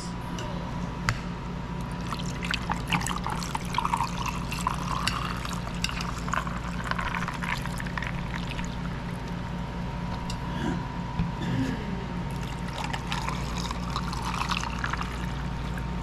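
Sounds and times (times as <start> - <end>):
juice pouring into a glass: 1.8 - 9.2, 12.3 - 15.8.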